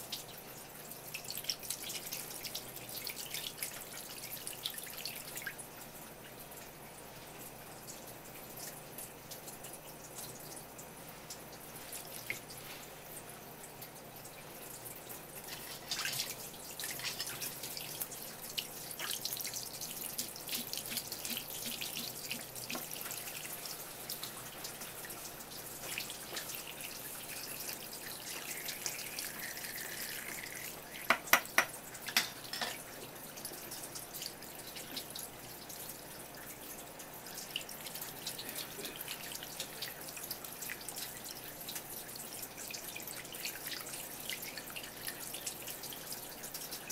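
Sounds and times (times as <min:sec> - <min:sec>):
tap water splashing on board: 0:20.2 - 0:23.2, 0:31.0 - 0:32.7.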